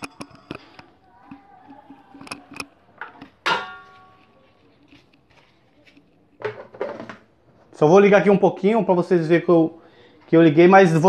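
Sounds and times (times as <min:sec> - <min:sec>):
kitchenware clicks: 0:02.1 - 0:04.2.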